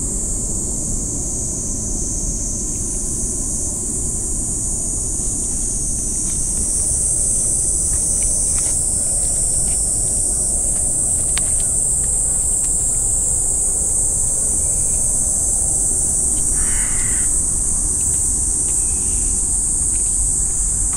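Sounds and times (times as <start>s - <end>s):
high-pitched hiss: 0.0s - 20.9s
crow cawing: 16.5s - 17.6s.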